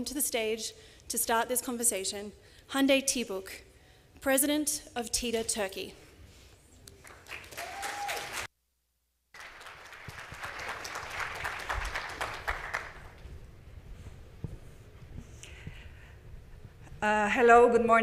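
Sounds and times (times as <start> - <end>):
audience applauding: 7.0 - 8.5, 9.4 - 13.3.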